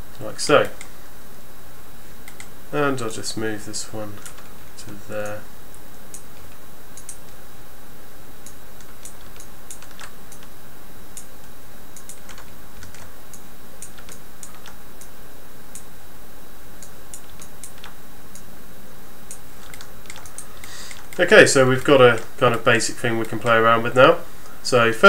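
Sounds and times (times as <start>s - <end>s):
steady background hiss: 0.0s - 25.0s
mouse and keyboard clicks: 19.3s - 21.2s.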